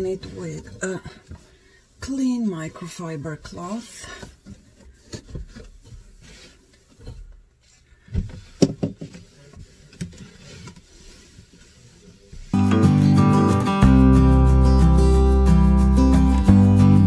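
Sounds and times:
cloth rubbing shelf: 0:00.0 - 0:12.6
acoustic guitar music: 0:12.5 - 0:17.0.

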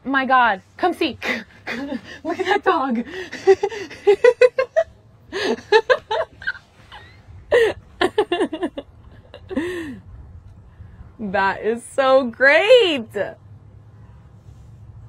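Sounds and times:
people laughing: 0:01.7 - 0:09.7.

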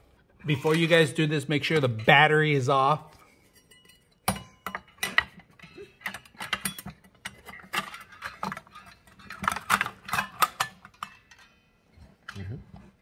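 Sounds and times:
metallic clicks and clinks: 0:03.4 - 0:12.6.

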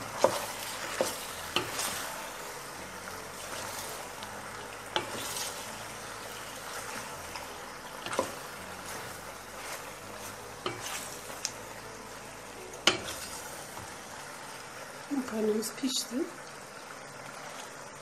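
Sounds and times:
wooden spoon stirring pasta: 0:00.0 - 0:12.2
sauce sizzling: 0:00.0 - 0:18.0.

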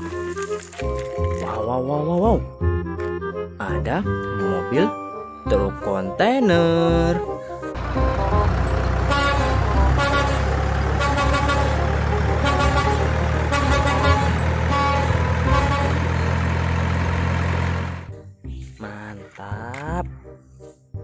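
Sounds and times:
diesel truck engine passing: 0:07.8 - 0:18.1
short bright horn toots: 0:12.4 - 0:16.3.

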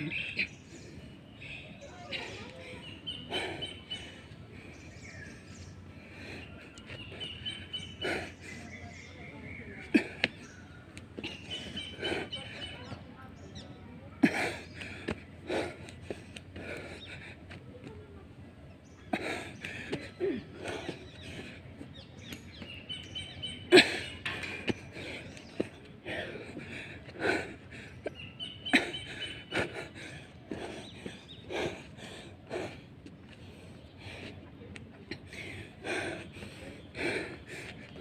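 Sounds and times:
birds chirping: 0:00.0 - 0:38.0
low outdoor background: 0:00.0 - 0:38.0
person breathing hard: 0:05.5 - 0:07.4, 0:28.9 - 0:34.4, 0:35.2 - 0:38.0.

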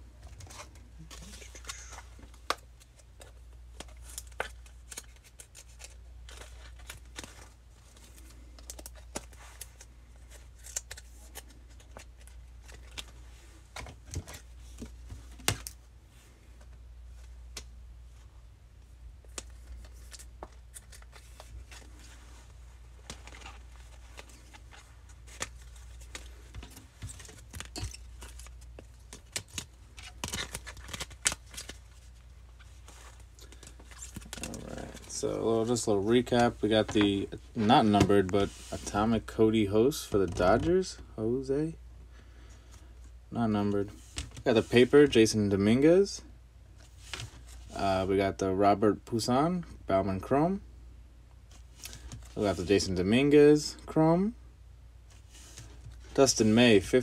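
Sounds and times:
low steady hum: 0:00.0 - 0:57.0
cards clicking and plastic rustling: 0:00.2 - 0:15.8, 0:19.2 - 0:22.2, 0:23.0 - 0:39.3, 0:51.5 - 0:53.3.

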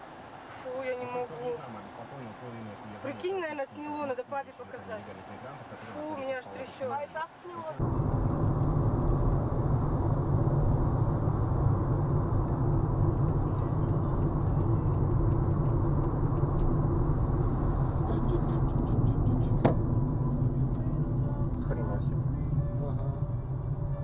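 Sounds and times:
car driving on highway: 0:07.7 - 0:24.0.

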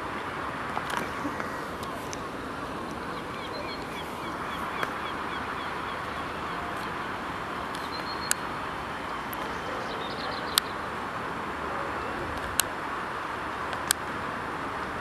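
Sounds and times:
hiss of traffic: 0:00.0 - 0:15.0
sharp clicks: 0:07.7 - 0:08.4, 0:13.7 - 0:14.0
small bird chirping: 0:07.8 - 0:08.4.

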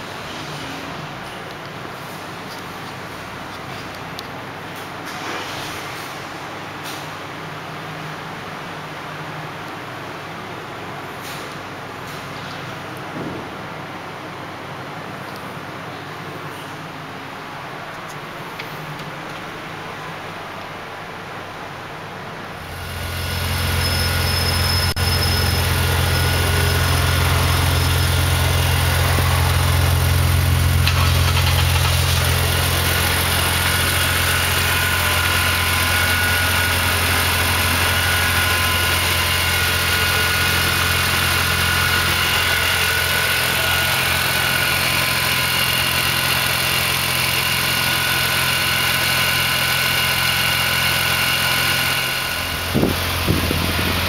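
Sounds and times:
car engine idling: 0:22.5 - 0:54.0.

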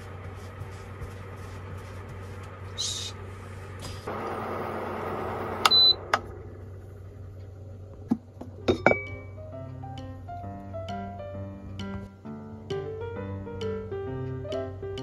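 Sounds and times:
cooktop beep: 0:05.7 - 0:06.0
plucked-string background music: 0:08.6 - 0:15.0
pot lid clinking: 0:08.7 - 0:09.2.

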